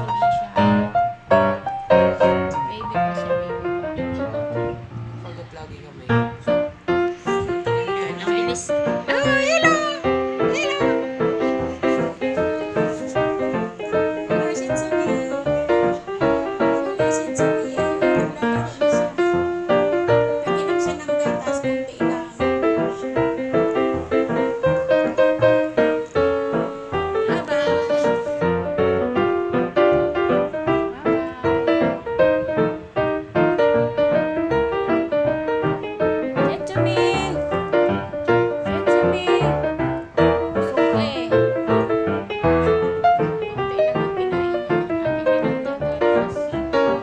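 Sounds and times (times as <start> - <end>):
keyboard melody: 0.0 - 47.0
piano tune: 0.0 - 47.0.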